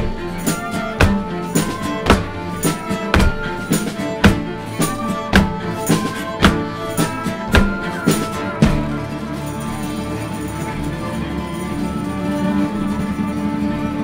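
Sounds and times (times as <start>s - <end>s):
steady drum beat: 0.0s - 9.9s
flute: 0.0s - 14.0s
strummed acoustic guitar: 0.0s - 14.0s.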